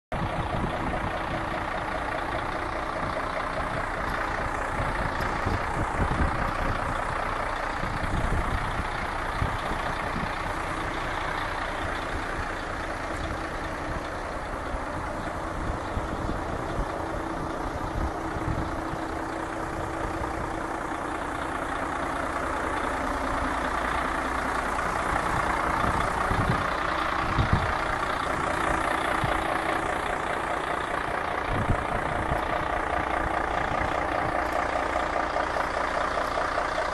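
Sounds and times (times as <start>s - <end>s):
diesel engine idling: 0.1s - 36.9s.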